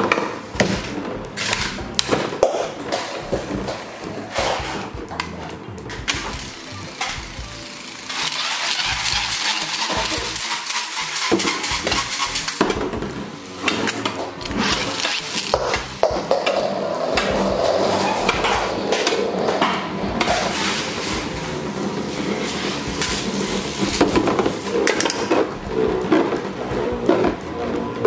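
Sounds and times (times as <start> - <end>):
spinning tops whirring: 2.6 - 27.5
tops scraping plastic bowl: 8.3 - 27.4.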